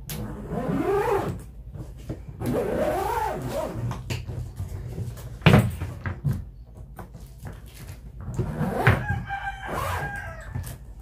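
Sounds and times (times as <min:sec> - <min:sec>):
rooster crowing: 0:08.9 - 0:11.0.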